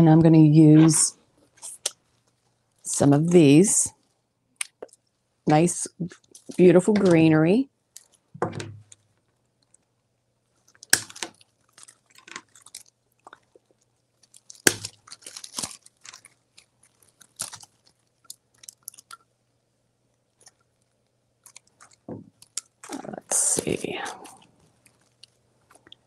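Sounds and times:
plastic leaves rustling: 14.2s - 19.1s.

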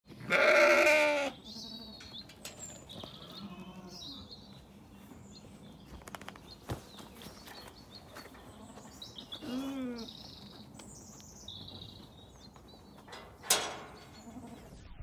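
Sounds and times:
sheep bleating: 0.2s - 2.0s.

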